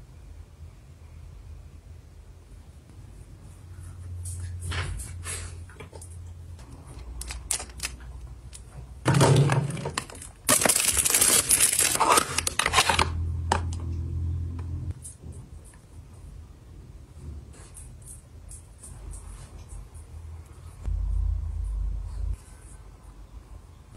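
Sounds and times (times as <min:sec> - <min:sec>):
plastic bag crinkling: 0:06.9 - 0:08.6, 0:09.4 - 0:13.2.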